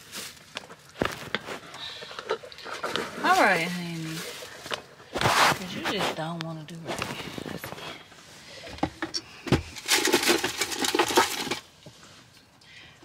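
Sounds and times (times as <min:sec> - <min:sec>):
small hard objects rattling: 0:09.6 - 0:11.7.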